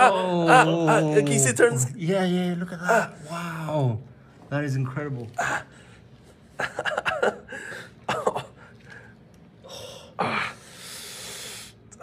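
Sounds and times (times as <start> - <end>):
drawn-out hissing breath: 9.6 - 11.9.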